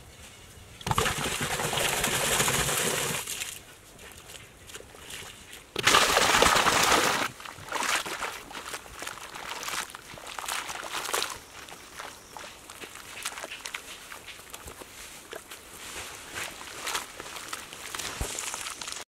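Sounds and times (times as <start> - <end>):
water splashing into cement mix: 0.8 - 3.4, 5.8 - 8.8.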